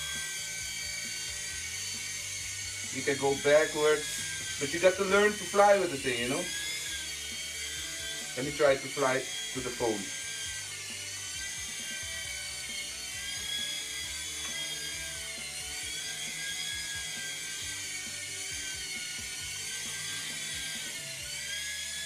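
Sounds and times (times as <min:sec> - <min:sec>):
toy helicopter motor whine: 0:00.0 - 0:22.0.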